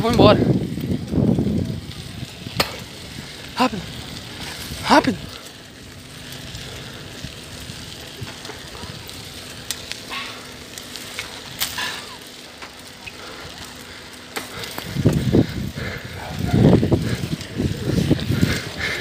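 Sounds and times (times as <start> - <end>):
wind and handling rumble on microphone: 0.0 - 10.0, 14.4 - 19.0.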